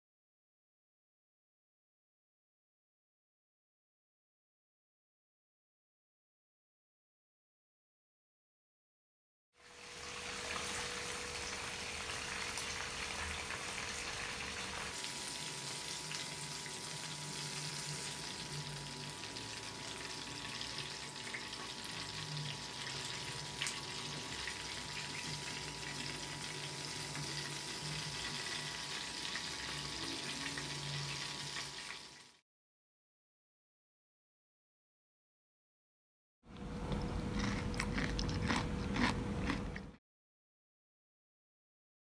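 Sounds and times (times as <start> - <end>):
food sizzling in hot oil: 9.6 - 32.4
faint steady hum: 36.5 - 40.0.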